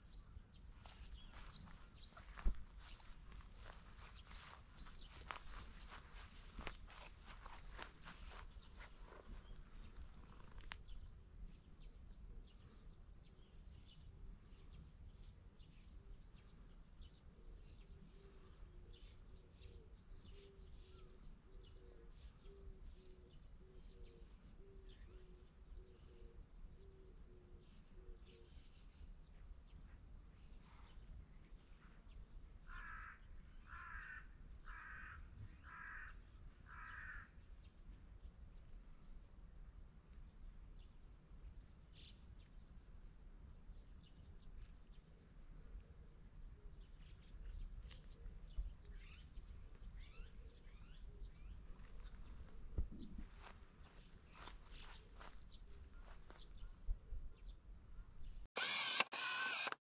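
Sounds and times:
distant bird chirps: 0.0 - 11.2, 46.9 - 56.8, 58.2 - 59.8
crow cawing: 32.7 - 37.3
sharp click: 58.6 - 59.8.

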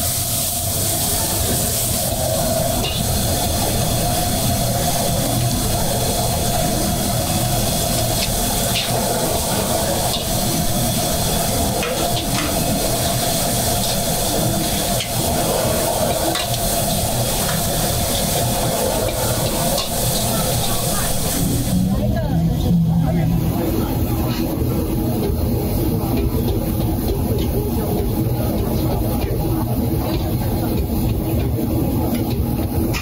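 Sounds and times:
noodles sizzling: 0.0 - 21.8
low rumble: 21.4 - 27.3.

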